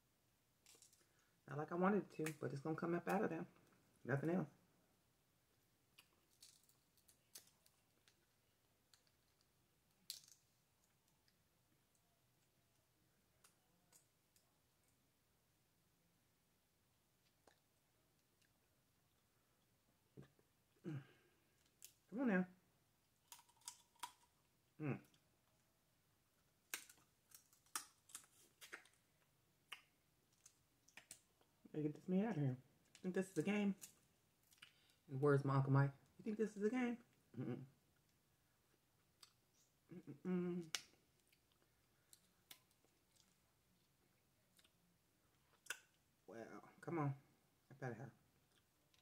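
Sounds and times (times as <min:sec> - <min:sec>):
crawfish shell cracking: 0:05.9 - 0:11.4, 0:23.2 - 0:24.4, 0:26.6 - 0:29.0, 0:29.7 - 0:31.4.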